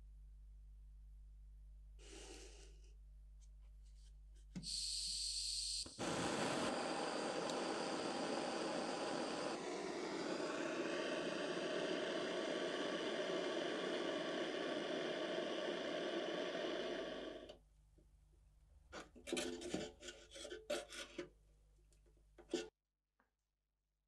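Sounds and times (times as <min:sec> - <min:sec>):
gas torch flame hissing: 0:04.6 - 0:17.6
scraping on metal: 0:19.2 - 0:21.3.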